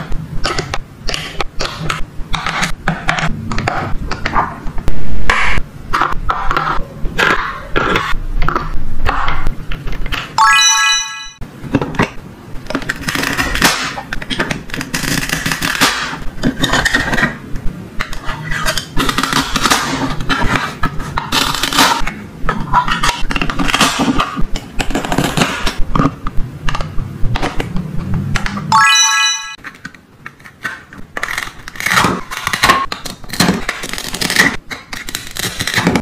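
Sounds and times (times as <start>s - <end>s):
short bright chime: 10.4s - 11.4s, 28.7s - 29.6s
plastic toys clicking and scraping: 12.0s - 17.4s, 18.0s - 27.7s, 29.6s - 36.0s.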